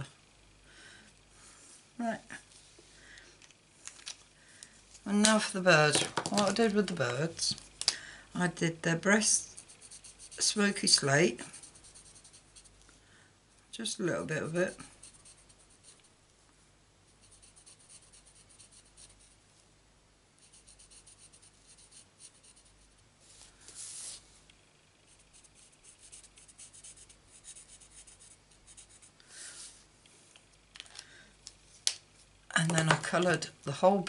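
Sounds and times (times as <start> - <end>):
marker scratching on card: 17.2 - 19.3, 25.1 - 29.1.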